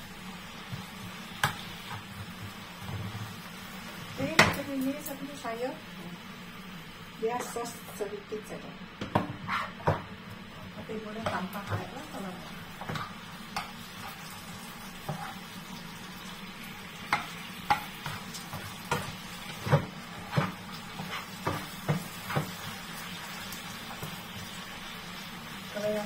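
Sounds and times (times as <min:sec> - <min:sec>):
vegetables sizzling in a frying pan: 0:00.0 - 0:26.0
spatula tapping and scraping a pan: 0:00.7 - 0:03.2, 0:09.0 - 0:10.1, 0:11.2 - 0:12.2, 0:12.8 - 0:14.2, 0:15.0 - 0:15.4, 0:17.0 - 0:22.8.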